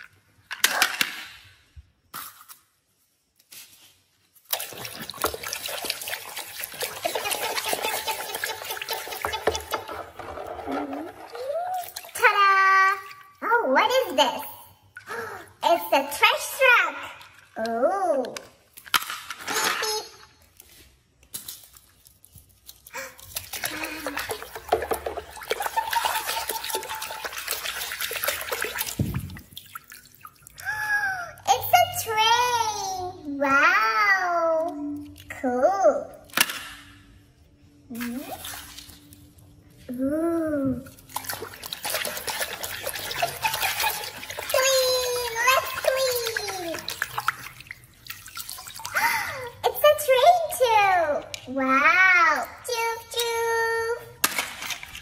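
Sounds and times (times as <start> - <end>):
toy vehicles splashing in water: 4.4 - 13.9, 21.3 - 31.6, 40.9 - 51.5, 54.2 - 55.0.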